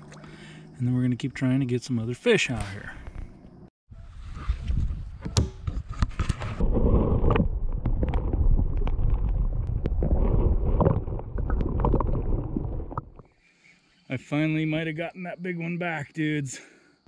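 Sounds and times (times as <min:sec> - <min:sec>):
water at river surface: 0:00.0 - 0:00.8, 0:05.6 - 0:14.0
wind: 0:00.0 - 0:17.0
muffled underwater rushing water: 0:06.6 - 0:13.3.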